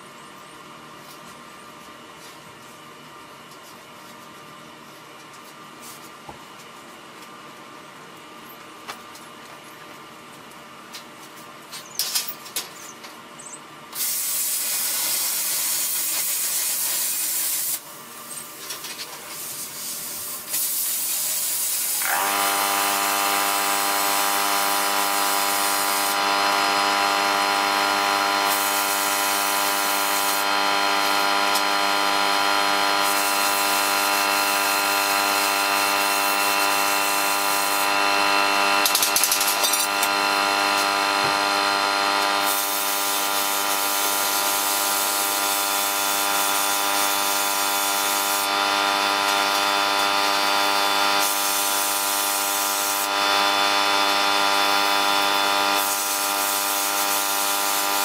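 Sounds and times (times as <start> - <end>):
air compressor motor running: 12.8 - 58.0
compressed air hose blasts: 13.9 - 18.6, 19.2 - 26.8, 27.9 - 32.2, 33.0 - 38.0, 38.8 - 41.5, 42.1 - 58.0.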